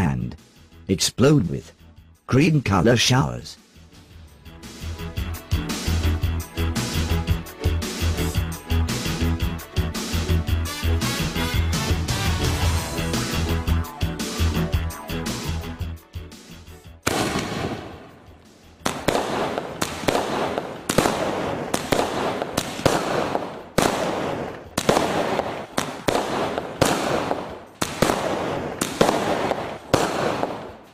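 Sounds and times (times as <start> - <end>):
firework shots banging and crackling: 17.0 - 30.9.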